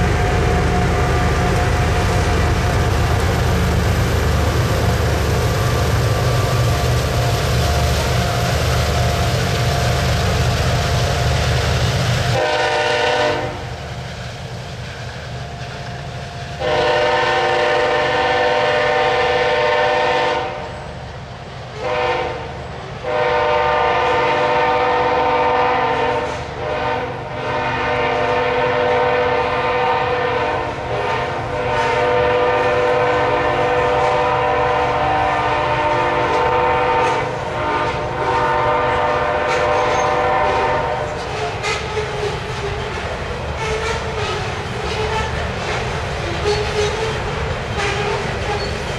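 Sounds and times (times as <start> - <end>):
freight cars rumbling past: 0.0 - 12.4
locomotive horn blasts: 12.3 - 13.7, 16.6 - 20.7, 21.8 - 42.1.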